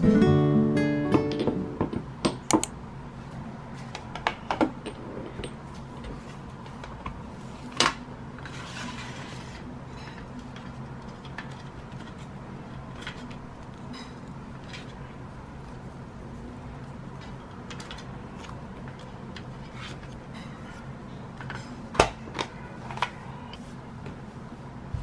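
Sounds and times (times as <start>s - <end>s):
sharp clicks: 2.5s - 2.7s.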